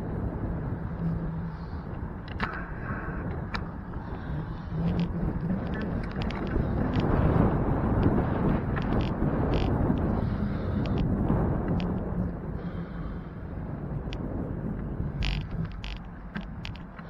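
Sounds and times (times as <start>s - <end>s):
faint car engine hum: 0.0s - 17.0s
wind and road noise rumble: 0.0s - 17.0s
sharp clicks or rattles: 15.2s - 17.0s.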